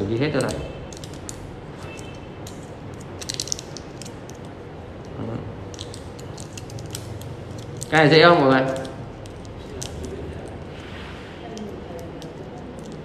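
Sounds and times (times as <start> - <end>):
aluminium foil crinkling: 5.7 - 10.8, 11.5 - 13.0.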